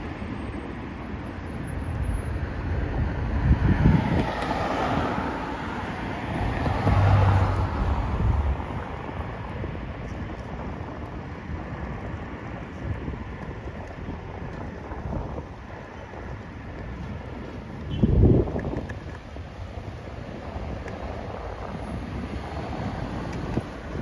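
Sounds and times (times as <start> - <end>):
wind rumble on microphone: 0.0 - 24.0
vehicle passing: 3.4 - 9.4.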